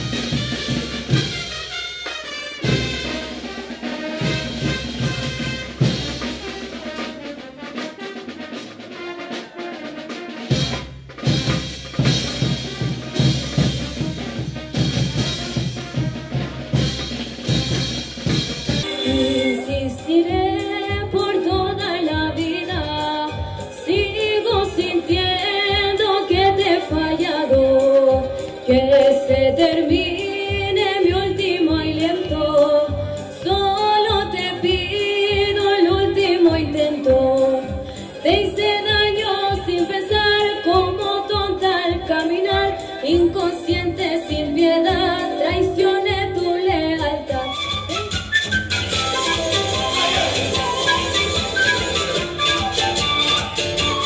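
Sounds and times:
fast heavy drumbeat music: 0:00.0 - 0:54.0
melodic lead over steady beat: 0:27.6 - 0:31.3.

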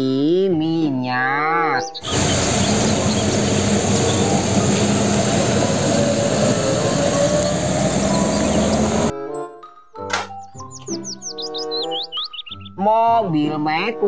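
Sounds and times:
diesel truck engine running: 0:02.0 - 0:09.1
tyres hissing on wet road: 0:02.0 - 0:09.1.

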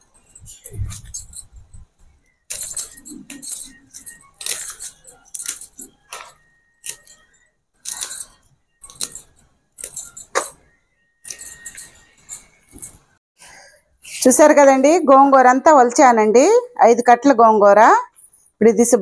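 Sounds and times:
bangles clinking: 0:00.0 - 0:13.2.

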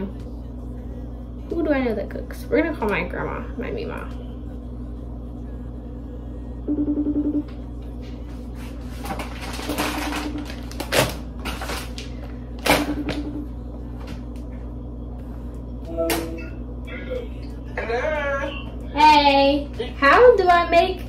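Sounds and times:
phone ring tone on speaker: 0:06.7 - 0:07.5
plastic bag rustling: 0:08.7 - 0:12.3.

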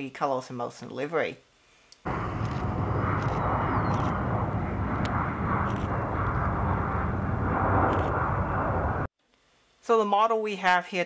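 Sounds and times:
jet engine rush: 0:02.1 - 0:09.1
low hum: 0:02.1 - 0:09.1.

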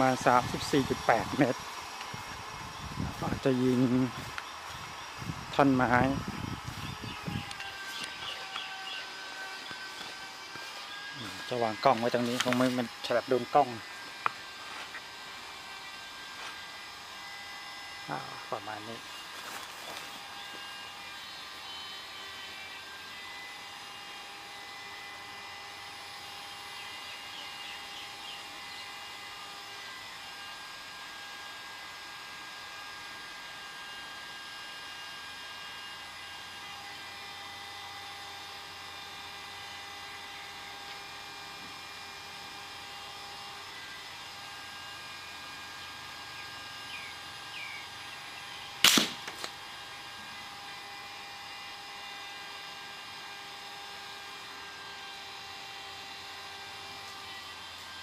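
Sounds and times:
steady background hum: 0:00.0 - 0:58.0
pellet striking wooden target: 0:48.8 - 0:49.5.

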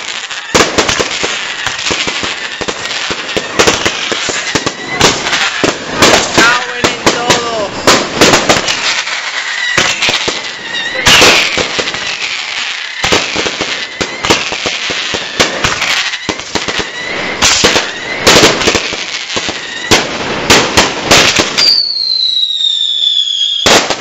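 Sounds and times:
firecracker crackle: 0:00.0 - 0:24.0
firecrackers banging: 0:00.0 - 0:24.0
thin high whistle: 0:09.4 - 0:11.2.

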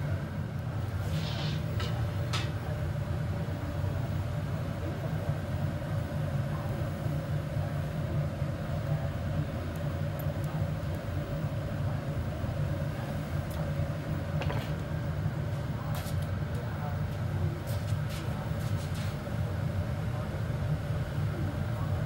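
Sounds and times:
faint steady hum: 0:00.0 - 0:17.6
furnace burners rumbling: 0:00.0 - 0:22.0.

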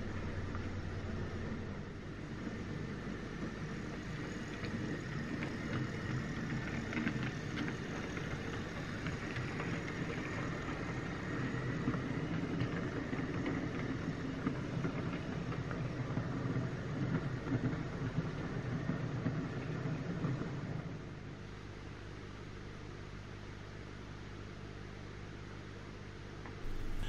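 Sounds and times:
model train motor whir: 0:02.4 - 0:15.7.

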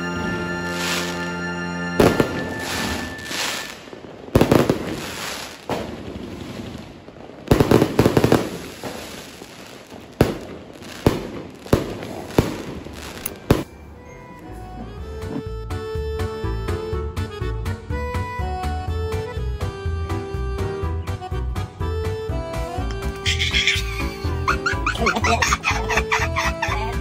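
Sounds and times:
fireworks bangs: 0:00.0 - 0:14.0
fireworks crackling and fizzing: 0:00.1 - 0:13.8.

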